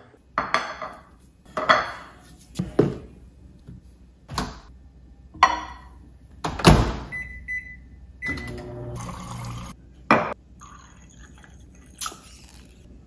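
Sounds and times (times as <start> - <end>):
microwave keypad beeps: 7.1 - 8.7.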